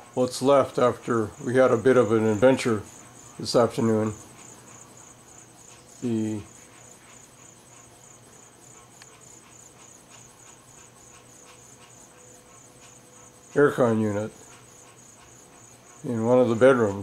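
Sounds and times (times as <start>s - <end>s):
insects chirping trill: 0.0s - 17.0s.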